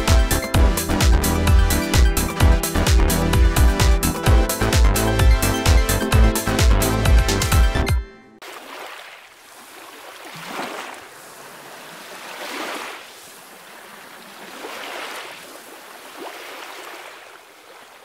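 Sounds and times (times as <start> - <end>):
small waves washing on beach: 8.4 - 18.0.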